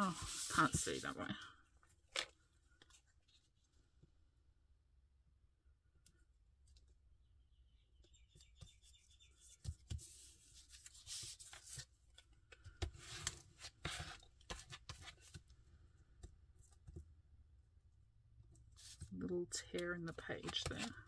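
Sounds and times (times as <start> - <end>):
paper rustling: 0.0 - 1.4, 9.5 - 11.9, 20.1 - 21.0.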